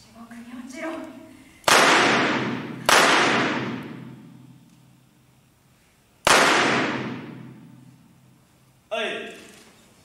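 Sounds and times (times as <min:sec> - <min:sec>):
handgun shots with long echo: 0:01.7 - 0:04.4, 0:06.2 - 0:07.8.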